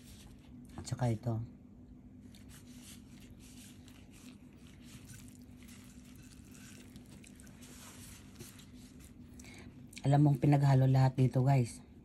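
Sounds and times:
wet squishing of noodles: 0:02.2 - 0:10.1.

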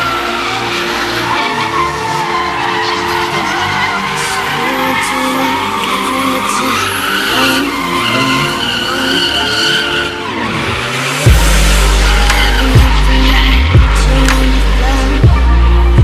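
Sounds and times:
car tyres skidding: 0:00.0 - 0:16.0
electronic music with bass drop: 0:00.0 - 0:16.0.

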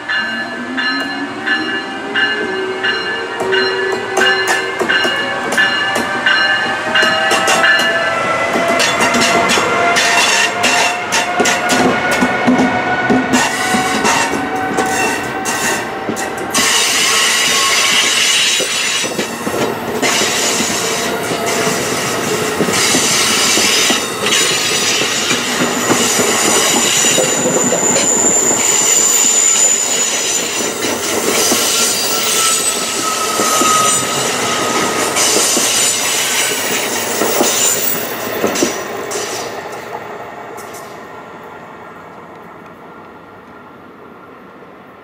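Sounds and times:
train wheels clattering on rail: 0:02.2 - 0:41.1
wheel squeals: 0:13.3 - 0:39.4.

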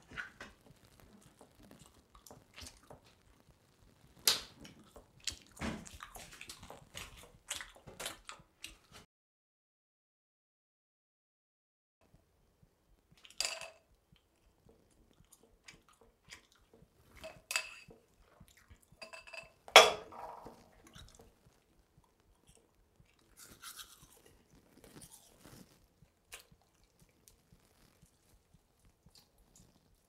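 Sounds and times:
glass and toothbrush knocking: 0:19.0 - 0:20.6
teeth brushing: 0:20.6 - 0:30.0.

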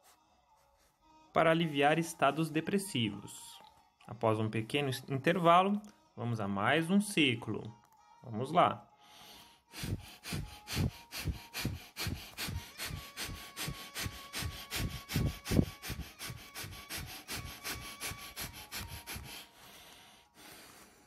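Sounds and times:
man breathing rapidly through nose: 0:09.0 - 0:21.0.

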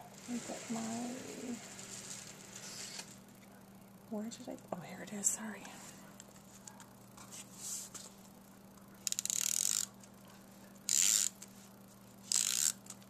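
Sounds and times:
tape runner ratcheting rasp: 0:10.9 - 0:11.4, 0:12.3 - 0:13.0.

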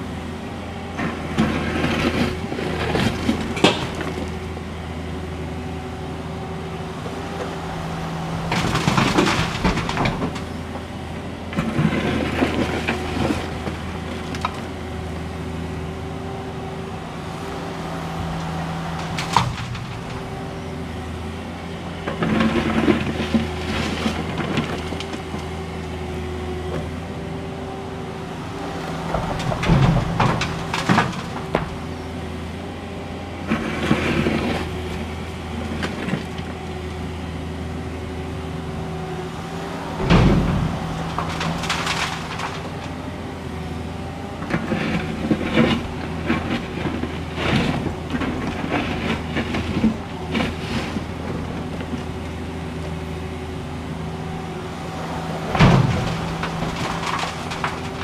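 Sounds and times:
excavator diesel engine running: 0:00.0 - 0:58.0
asphalt slabs banging in truck bed: 0:02.8 - 0:04.4, 0:08.4 - 0:10.7, 0:18.4 - 0:20.4, 0:29.0 - 0:31.9, 0:39.8 - 0:43.0, 0:55.1 - 0:58.0.

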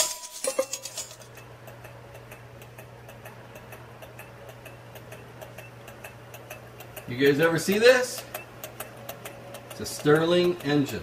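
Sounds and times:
low steady hum: 0:00.0 - 0:11.0
stirling engine ticking: 0:01.5 - 0:11.0.

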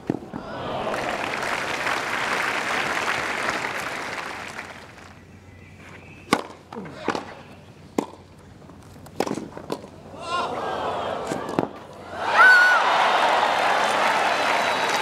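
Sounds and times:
crowd applauding: 0:00.4 - 0:05.2, 0:12.2 - 0:15.0
racket striking ball: 0:06.3 - 0:07.3, 0:08.0 - 0:08.3, 0:09.0 - 0:09.9.

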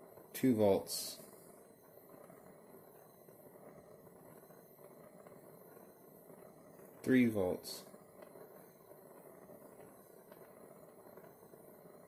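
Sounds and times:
torch flame rushing: 0:00.0 - 0:12.0.

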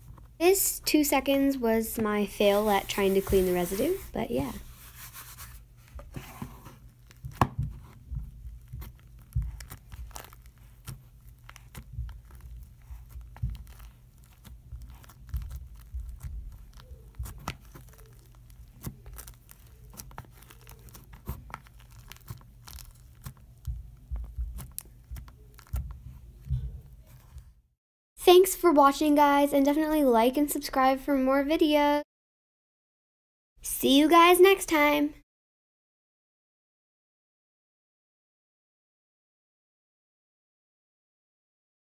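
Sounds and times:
slime crackling and popping: 0:06.8 - 0:27.5.

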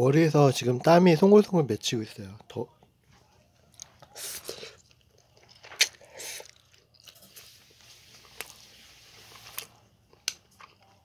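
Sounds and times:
noodle slurping and chewing: 0:03.8 - 0:11.0
faint steady hiss: 0:07.1 - 0:09.8.

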